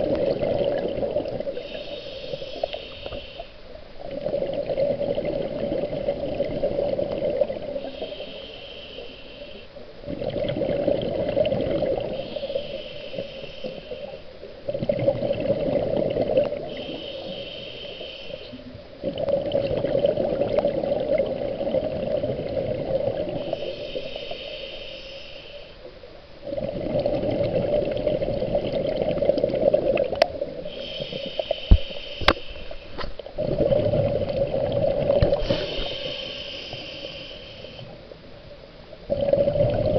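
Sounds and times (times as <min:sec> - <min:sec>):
regulator inhale hiss: 0:01.5 - 0:04.0, 0:07.7 - 0:10.0, 0:12.0 - 0:14.5, 0:16.5 - 0:18.7, 0:23.3 - 0:25.9, 0:30.6 - 0:33.3, 0:35.2 - 0:38.0
exhaust bubbles rushing: 0:33.4 - 0:35.4.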